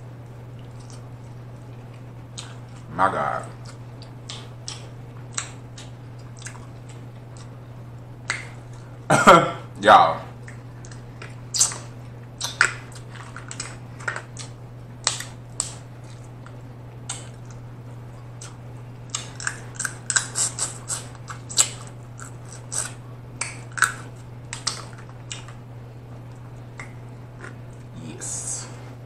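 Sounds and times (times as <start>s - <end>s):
steady low hum: 0.0s - 29.0s
wet mouth smacks chewing: 3.6s - 7.5s, 10.4s - 17.6s, 18.4s - 25.6s
crab shell cracking: 10.4s - 17.6s, 18.3s - 25.6s.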